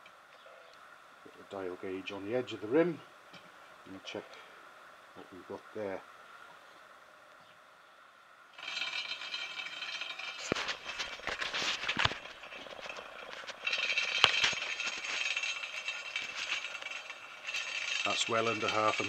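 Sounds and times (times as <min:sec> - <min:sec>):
spinning wheel metallic rattle: 0:08.6 - 0:19.0.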